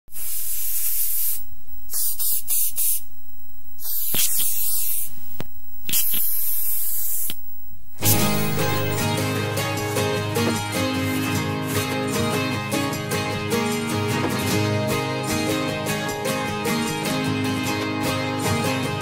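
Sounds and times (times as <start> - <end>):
spray can hissing: 0.1 - 3.2, 3.8 - 7.4, 8.0 - 9.1.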